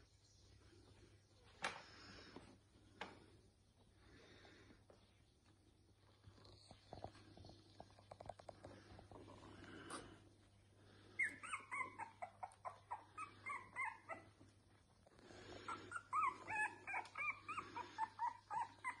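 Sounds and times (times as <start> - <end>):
puppies squeaking and whimpering: 11.1 - 14.8, 15.4 - 19.0.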